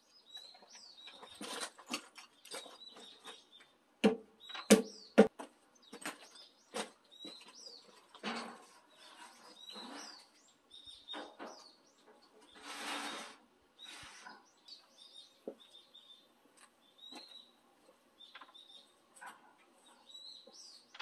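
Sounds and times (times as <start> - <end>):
small birds chirping: 0.0 - 21.0
log bumping and scraping: 0.3 - 3.4
sharp knocks on wood: 4.0 - 5.5.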